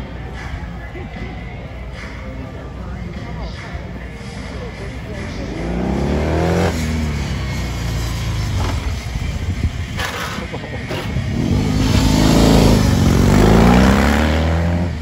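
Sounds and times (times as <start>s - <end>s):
motorcycle engine revving: 5.3s - 15.0s.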